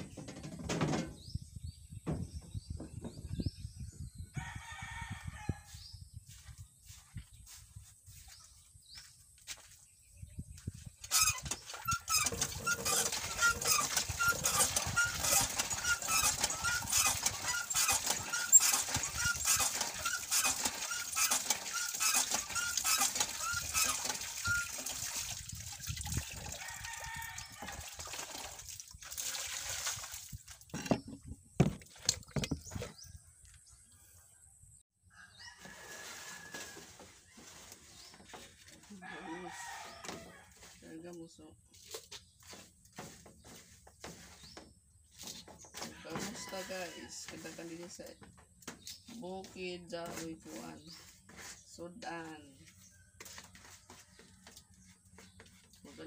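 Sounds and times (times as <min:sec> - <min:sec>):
hand pump handle squeaking: 0:11.0 - 0:25.4, 0:30.7 - 0:33.1, 0:43.6 - 0:47.7
water splashing: 0:11.7 - 0:30.9.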